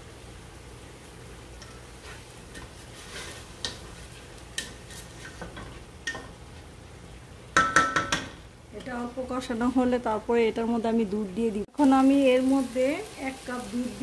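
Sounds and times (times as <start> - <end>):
spatula scraping pot: 2.0 - 5.8
sharp knocks on ringing pot: 7.6 - 8.4.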